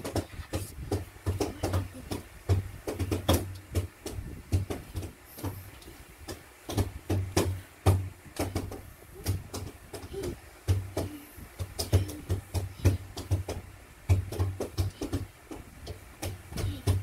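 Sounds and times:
child beatboxing: 0.1s - 2.3s, 8.4s - 13.4s, 14.2s - 17.0s.

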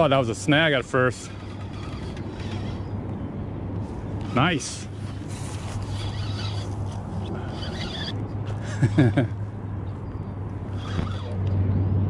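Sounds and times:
fishing reel cranking: 0.0s - 3.0s, 4.2s - 8.2s, 10.7s - 11.4s.

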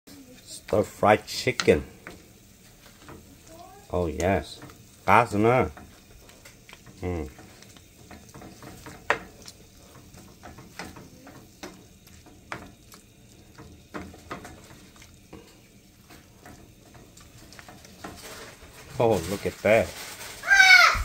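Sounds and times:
faint sizzle: 0.1s - 21.0s
wooden spoon knocking a pan: 4.1s - 14.8s.

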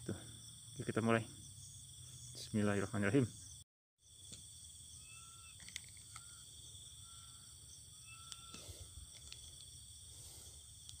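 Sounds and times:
crickets chirping: 0.0s - 11.0s
high ringing drone: 4.9s - 9.2s.

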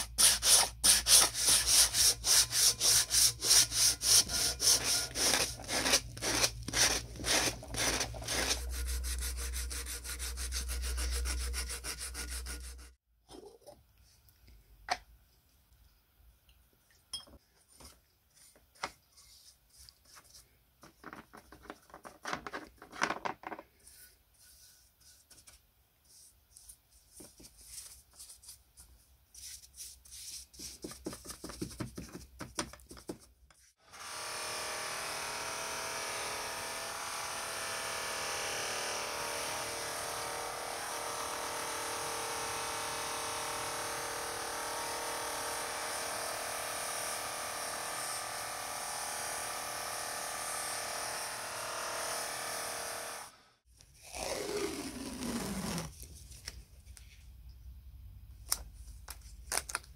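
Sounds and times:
stiff brush scrubbing metal parts: 0.0s - 13.0s
buffing wheel running: 34.0s - 53.4s.

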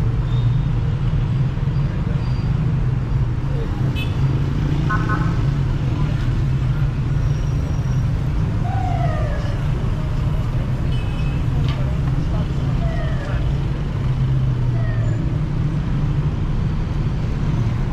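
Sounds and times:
city traffic rumbling: 0.0s - 17.9s
passers-by talking: 9.6s - 14.2s.

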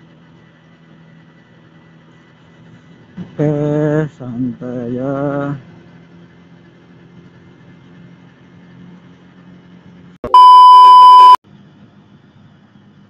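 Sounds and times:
loud test-tone bleep: 10.2s - 11.4s.

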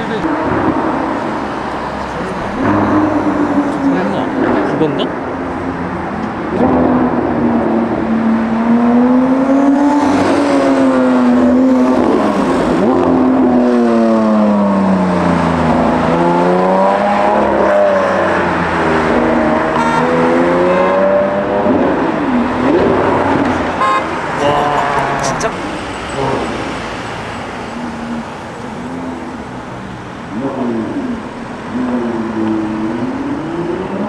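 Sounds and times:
sports car engine revving: 0.2s - 27.1s.

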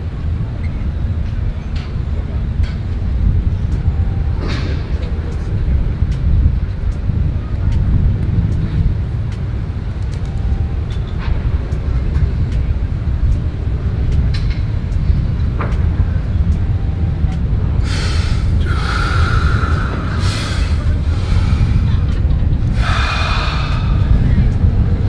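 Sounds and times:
steady low rumble: 0.0s - 25.0s
hissing breaths through the mouth: 17.8s - 22.1s, 22.7s - 24.4s.

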